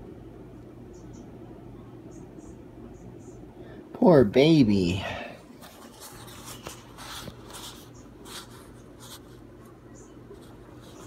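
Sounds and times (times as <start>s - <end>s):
low steady hum: 0.0s - 11.0s
faint scratchy rustling: 5.5s - 11.0s.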